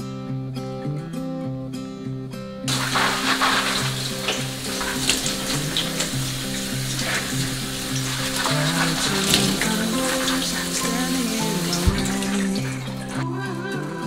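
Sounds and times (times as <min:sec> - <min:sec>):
soft background music: 0:02.1 - 0:14.0
tap water splashing: 0:02.7 - 0:13.2.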